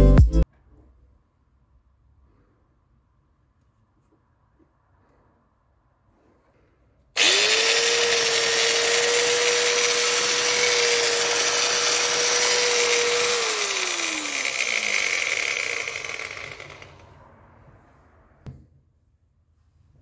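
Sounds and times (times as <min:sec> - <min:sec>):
angle grinder whining: 0:07.2 - 0:17.2.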